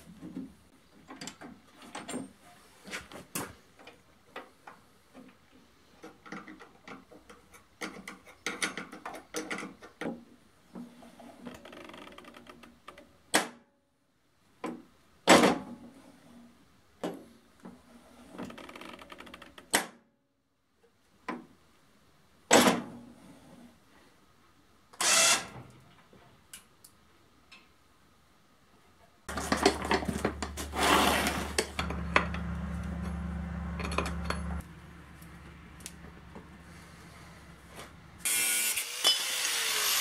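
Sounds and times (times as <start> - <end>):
metal parts clanking: 29.3 - 34.7.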